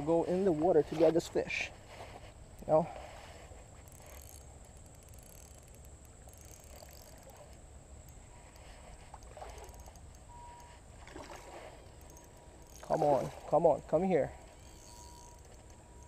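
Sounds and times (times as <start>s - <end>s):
creek water sloshing: 8.2s - 16.0s.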